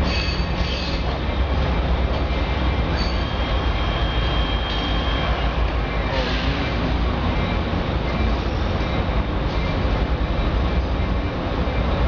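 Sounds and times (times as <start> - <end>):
train rolling with low rumble: 0.0 - 12.0
faint thin wheel squeal: 2.9 - 5.4.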